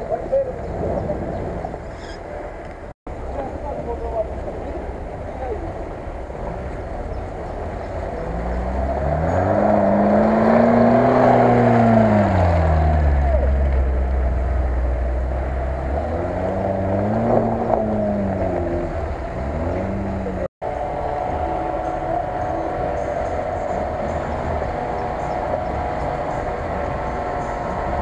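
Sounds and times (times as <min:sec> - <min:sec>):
car engine revving in mud: 0:06.4 - 0:28.0.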